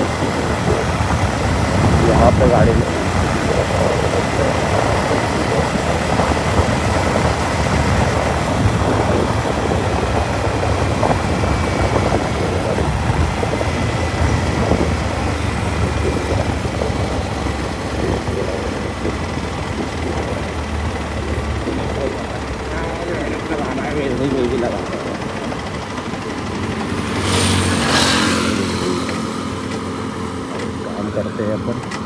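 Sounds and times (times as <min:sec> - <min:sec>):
motorcycle engine running: 0:00.0 - 0:32.0
wind rushing over microphone: 0:00.0 - 0:32.0.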